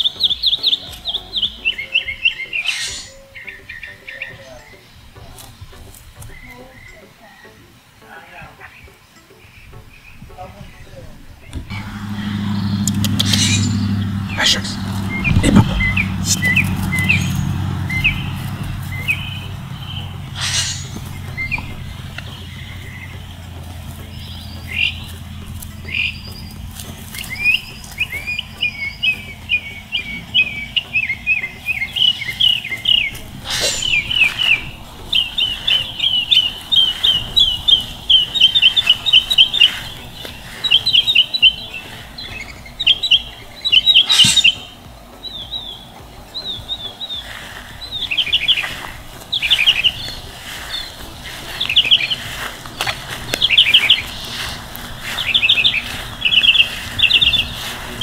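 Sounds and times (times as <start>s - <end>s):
birds chirping: 0.0s - 58.0s
low rumble: 11.4s - 32.1s.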